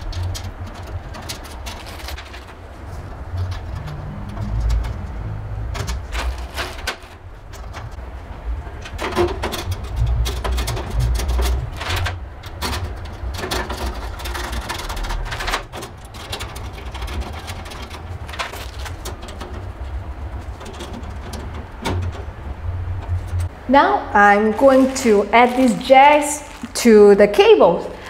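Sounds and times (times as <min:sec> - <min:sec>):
metal panel clicking and rattling: 0:08.8 - 0:23.5.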